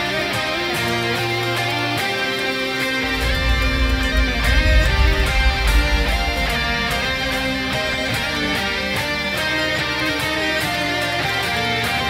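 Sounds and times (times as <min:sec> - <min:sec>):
electric guitar melody: 0:00.0 - 0:12.0.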